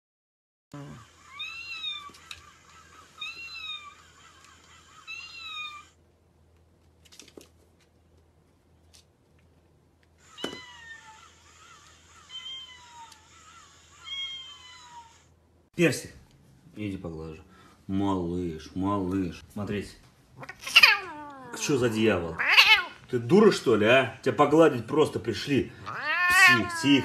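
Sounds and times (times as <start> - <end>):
cat meowing: 1.0 - 6.0, 10.3 - 15.3, 20.4 - 23.1, 25.8 - 27.0
faint clicks: 3.9 - 4.8.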